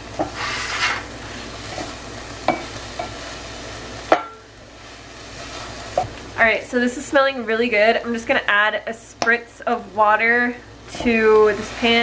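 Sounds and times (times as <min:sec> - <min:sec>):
vegetables sizzling in a skillet: 0:00.0 - 0:12.0.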